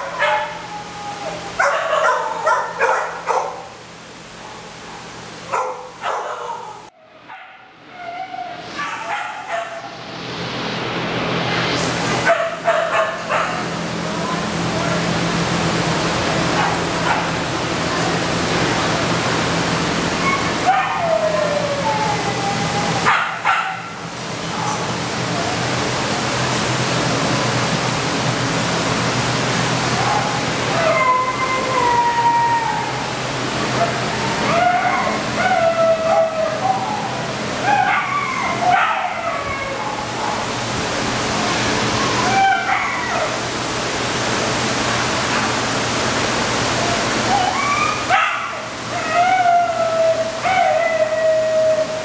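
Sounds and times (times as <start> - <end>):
dog barking: 1.6 - 3.7, 5.5 - 7.7, 8.8 - 9.9, 12.3 - 13.6, 23.1 - 23.9, 38.7 - 39.2
dog whining: 7.9 - 9.2, 20.2 - 23.1, 30.1 - 33.0, 33.8 - 40.4, 47.3 - 52.0.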